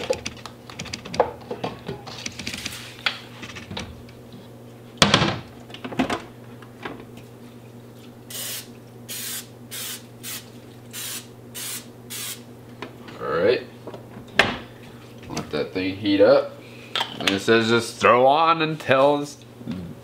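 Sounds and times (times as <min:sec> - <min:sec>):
aerosol spray can hissing: 0:08.3 - 0:12.4.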